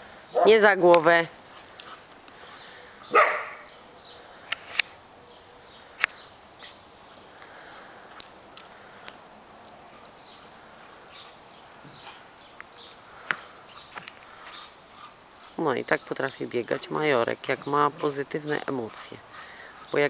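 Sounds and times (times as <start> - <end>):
dogs romping in snow: 1.0 - 2.9.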